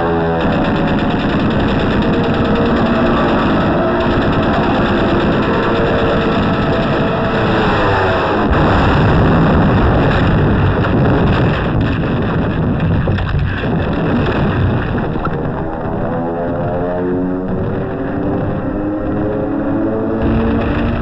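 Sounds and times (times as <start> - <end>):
bomb blast: 0.0 - 21.0
falling bomb whine: 0.0 - 21.0
heavy rumble of bombardment: 0.0 - 21.0.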